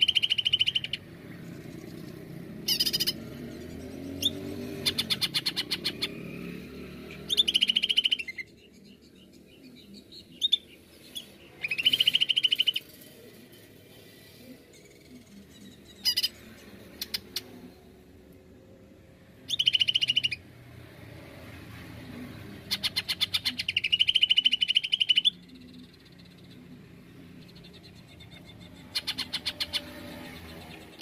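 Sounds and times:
bird calling in fast bursts: 0.0 - 1.1, 2.6 - 3.4, 4.2 - 6.2, 7.2 - 8.5, 19.4 - 20.4, 22.7 - 25.4, 28.4 - 30.2.

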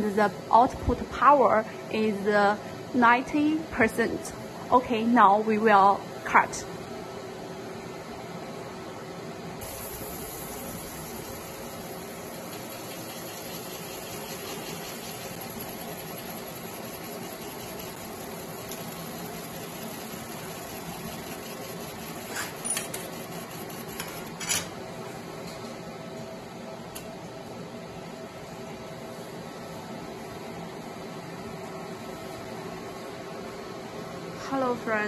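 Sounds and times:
fan hum: 0.0 - 35.0
high-pitched laser hiss: 9.6 - 11.8.

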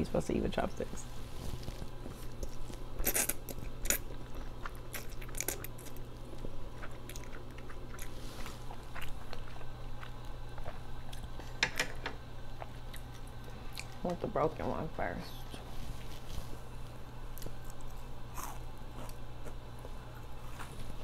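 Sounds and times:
chewing noodles: 1.4 - 11.6, 17.3 - 21.0.

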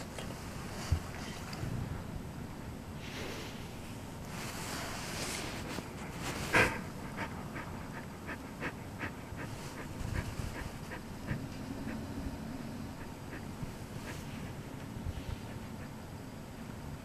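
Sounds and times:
soft hiss: 0.0 - 7.6
dog panting: 5.4 - 16.6.

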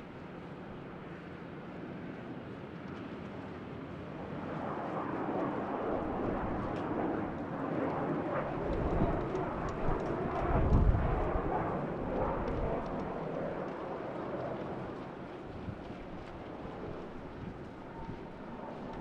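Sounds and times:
jet engines running: 0.0 - 19.0
wind buffeting microphone: 5.8 - 19.0.

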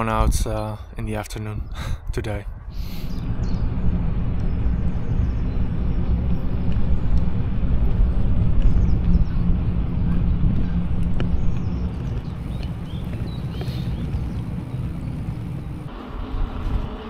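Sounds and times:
wind buffeting microphone: 0.0 - 17.0
bicycle tyres rolling on asphalt: 3.1 - 17.0.

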